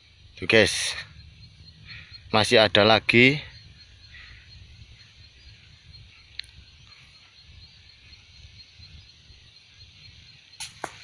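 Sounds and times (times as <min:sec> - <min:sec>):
wind rumble on microphone: 0:01.0 - 0:11.0.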